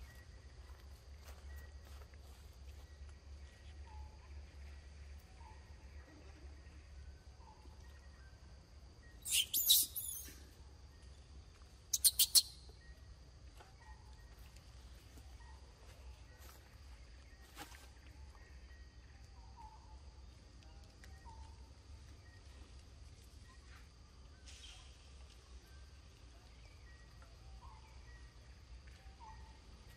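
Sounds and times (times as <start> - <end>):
faint chirps: 0.0 - 29.9
shrill wavering call: 9.2 - 10.3, 12.0 - 12.5
quick sharp chirps: 9.2 - 10.4, 11.9 - 12.7.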